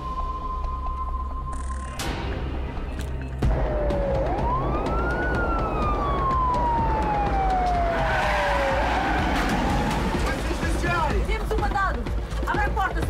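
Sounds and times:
music: 0:00.0 - 0:13.0
road noise of cars: 0:03.0 - 0:11.1
police siren wailing: 0:03.5 - 0:10.3.

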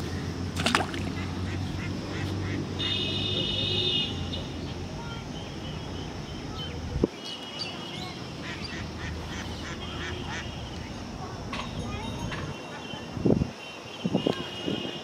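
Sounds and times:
outdoor background noise: 0:00.0 - 0:15.0
birds calling: 0:00.8 - 0:03.0.

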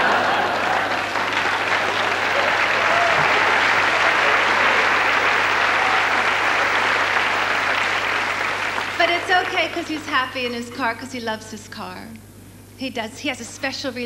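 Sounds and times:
audience applauding: 0:00.0 - 0:10.1.

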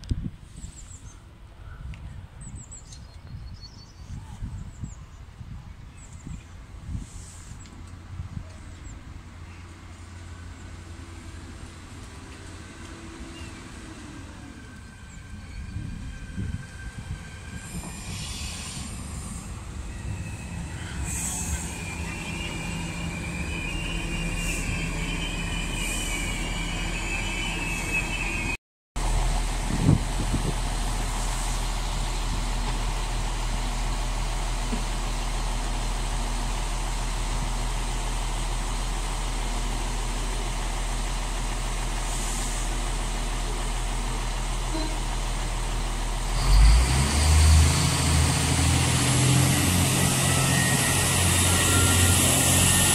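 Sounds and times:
diesel engines humming: 0:06.8 - 0:52.9
train wheels and brakes squealing: 0:12.3 - 0:28.6, 0:42.0 - 0:42.9, 0:46.0 - 0:52.9.

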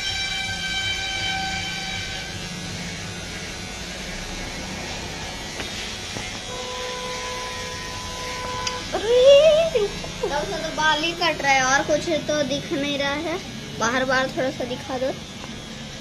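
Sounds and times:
electric hair clipper running: 0:00.0 - 0:11.1.

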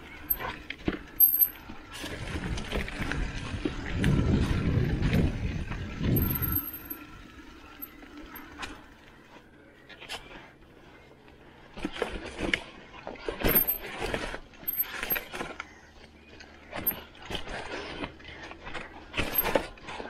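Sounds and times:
mountain bike rattling on dirt trail: 0:00.0 - 0:09.4.

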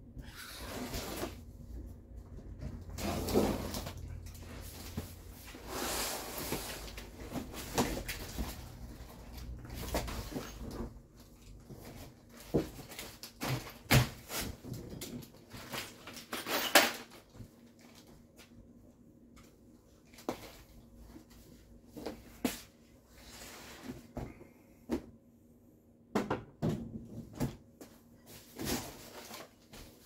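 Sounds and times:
cardboard scraping and rustling: 0:02.6 - 0:11.0, 0:28.3 - 0:30.0.

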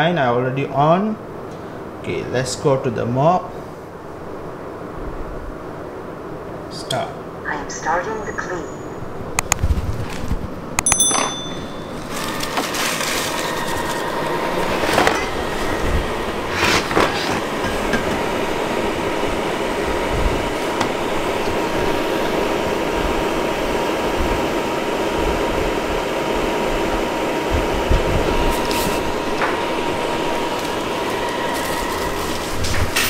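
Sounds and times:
robot vacuum running: 0:11.9 - 0:33.0.

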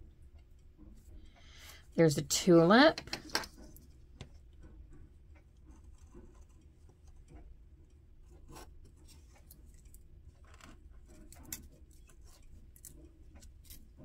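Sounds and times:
low room hum: 0:00.0 - 0:14.0
soft ticks of metal tool: 0:03.8 - 0:14.0.

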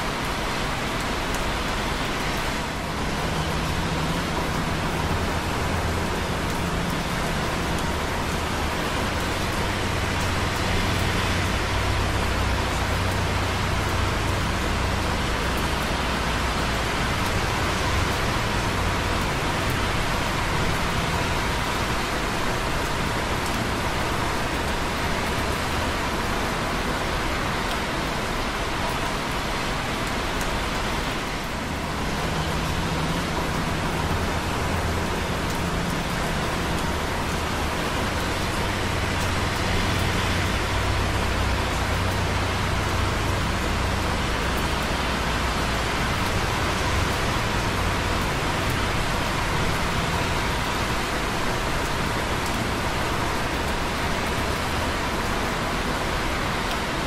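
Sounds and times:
rain dripping on concrete: 0:00.0 - 0:57.0
traffic on wet roads: 0:00.0 - 0:57.0.

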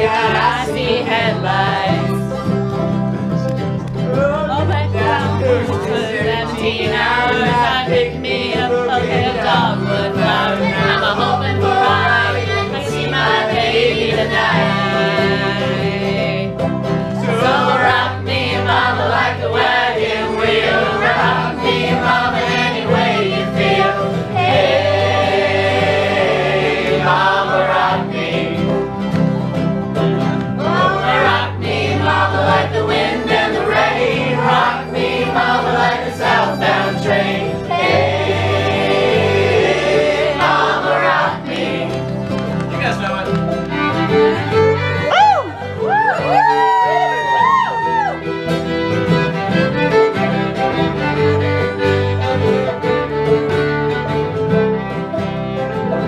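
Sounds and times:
several voices singing: 0:00.0 - 0:02.9, 0:04.2 - 0:29.3, 0:30.4 - 0:42.6
bluegrass string band playing: 0:00.0 - 0:56.0.

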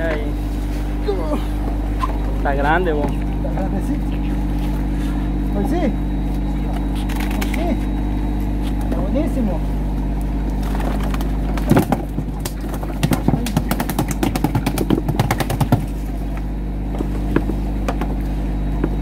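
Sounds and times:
boat engine humming: 0:00.0 - 0:19.0
fish thrashing against plastic tub: 0:06.4 - 0:09.0, 0:10.5 - 0:16.2.

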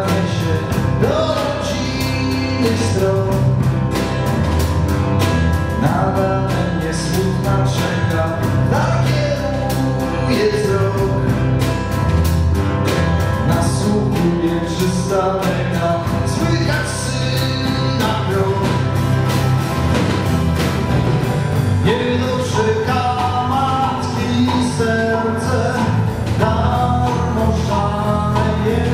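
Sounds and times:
man singing: 0:00.0 - 0:03.9, 0:05.7 - 0:11.7, 0:13.4 - 0:19.2, 0:21.7 - 0:28.9
acoustic guitar: 0:00.0 - 0:28.9
bass guitar: 0:00.0 - 0:28.9
drum kit beat: 0:00.0 - 0:28.9.

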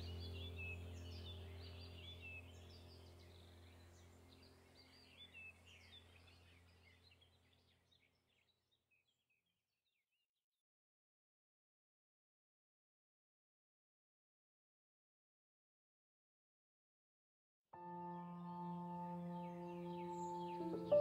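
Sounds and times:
low steady hum: 0:00.0 - 0:07.7, 0:17.8 - 0:21.0
faint birdsong: 0:00.0 - 0:10.1, 0:17.8 - 0:21.0.

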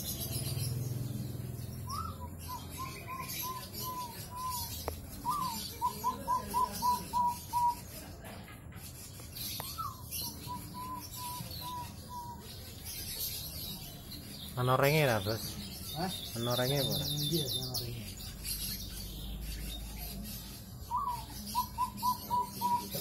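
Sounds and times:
dove cooing: 0:01.9 - 0:07.8, 0:20.9 - 0:23.0.

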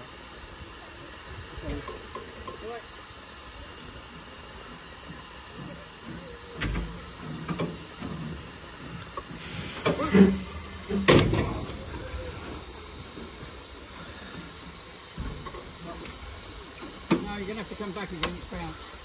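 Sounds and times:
steam locomotive hissing: 0:00.0 - 0:19.0
metal clanks and knocks: 0:06.6 - 0:11.8.

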